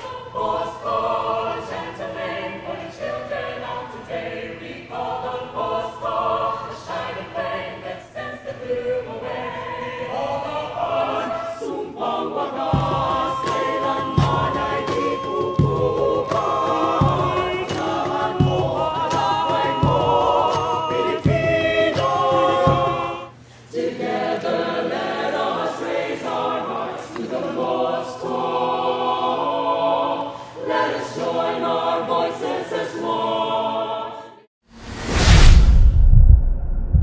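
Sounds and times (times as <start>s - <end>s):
choir singing: 0.0s - 34.5s
sharp rhythmic beats: 12.4s - 23.3s.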